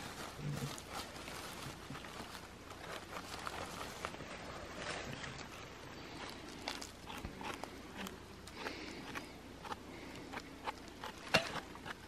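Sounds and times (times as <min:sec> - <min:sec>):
rustling in dry leaf litter: 0:00.0 - 0:09.2.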